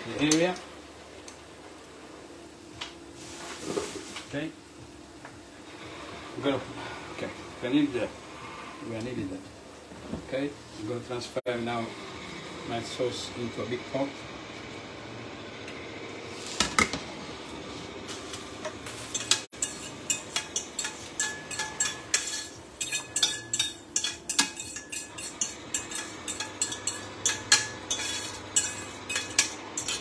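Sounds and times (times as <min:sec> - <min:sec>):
utensil scraping frying pan: 0:18.1 - 0:30.0.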